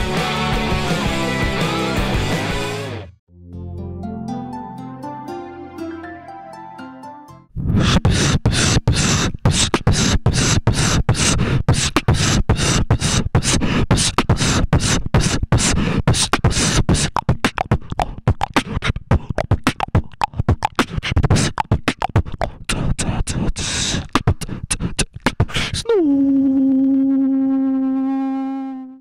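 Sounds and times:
person beatboxing: 7.7s - 26.0s.

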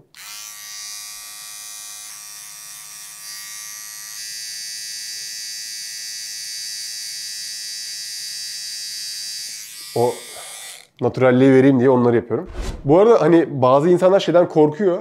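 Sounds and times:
electric trimmer buzzing: 0.1s - 10.9s.

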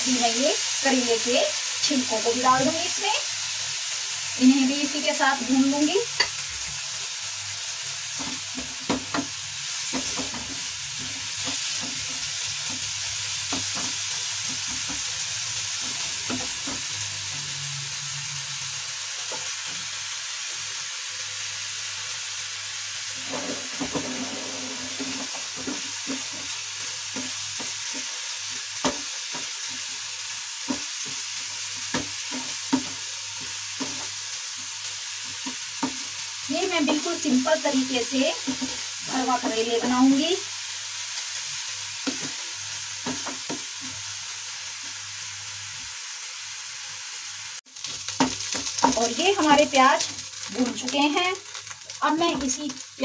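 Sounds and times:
vegetables sizzling in hot oil: 0.0s - 53.0s
wooden spatula scraping pan: 23.2s - 26.6s.

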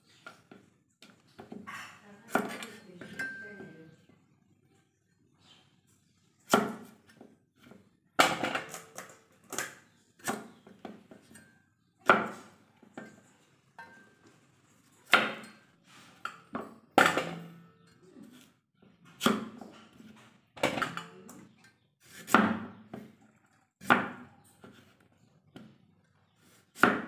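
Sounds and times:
cleaver chopping on wooden board: 19.2s - 19.7s, 22.2s - 22.9s, 23.8s - 24.3s, 26.8s - 27.0s.

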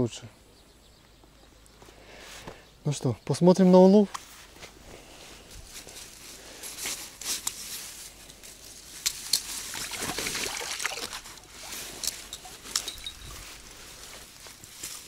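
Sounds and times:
net rustling: 5.3s - 15.0s
water pouring off net: 9.7s - 12.1s.

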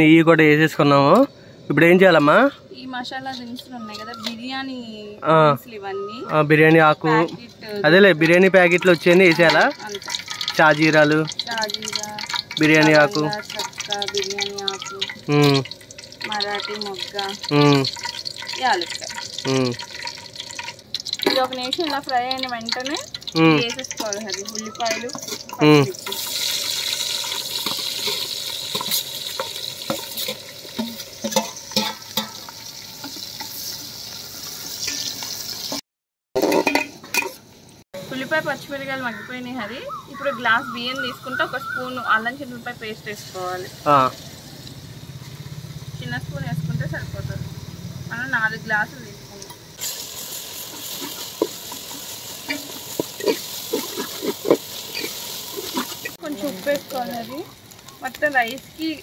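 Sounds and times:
onions sizzling in hot oil: 0.0s - 35.8s, 38.0s - 59.0s
metal spatula scraping a pot: 8.2s - 33.8s, 34.8s - 35.8s, 36.4s - 37.4s, 50.6s - 56.2s
metal spoon scraping a plate: 24.9s - 26.2s, 52.4s - 56.2s
spoon knocking on pot: 27.6s - 32.5s.

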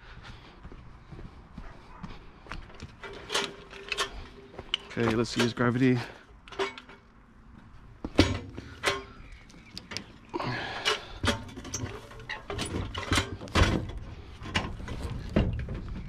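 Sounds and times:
knocks and clunks: 8.0s - 10.2s, 10.8s - 16.0s.

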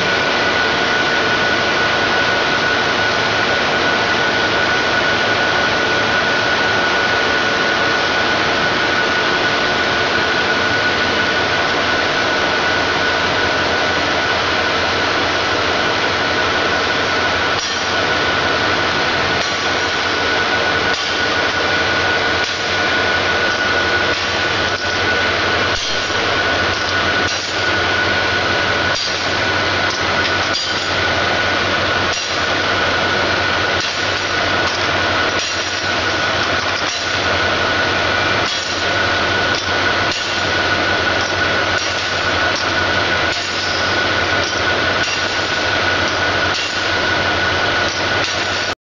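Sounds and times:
polishing machine grinding: 16.6s - 48.8s.

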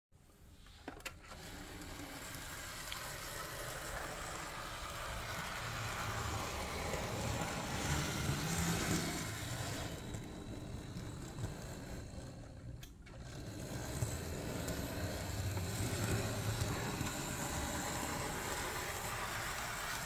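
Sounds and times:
model train motor whirring: 0.6s - 20.0s.

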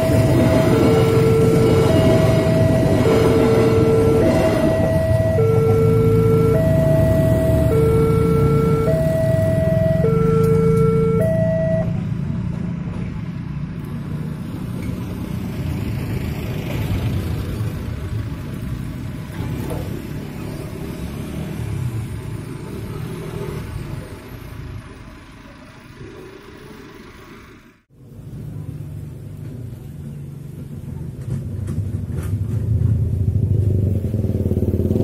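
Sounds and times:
level-crossing alarm two-tone signal: 0.0s - 12.0s
motorcycle engines passing: 0.0s - 35.0s
road train passing: 0.0s - 35.0s.

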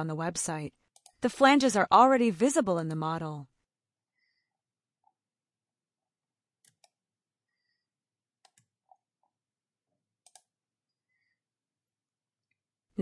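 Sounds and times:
computer mouse clicks: 6.6s - 7.0s, 8.4s - 8.8s, 10.2s - 10.5s.

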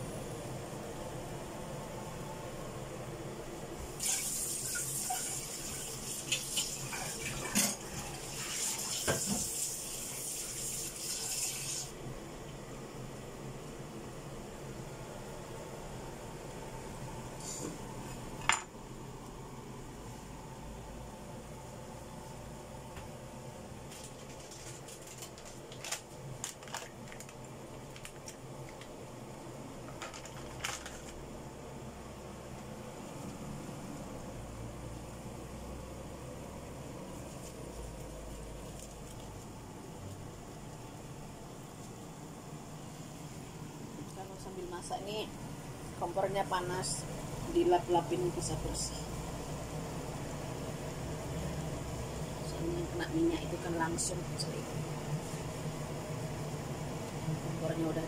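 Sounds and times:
steady low hum: 0.0s - 4.0s, 11.9s - 58.0s
kitchen tap running: 4.0s - 11.9s
oil frying and spattering: 4.0s - 11.9s.

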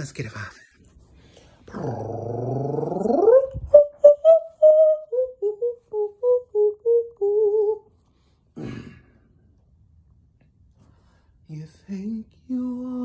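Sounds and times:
person singing vocal warm-up: 1.7s - 7.9s, 11.5s - 13.0s.

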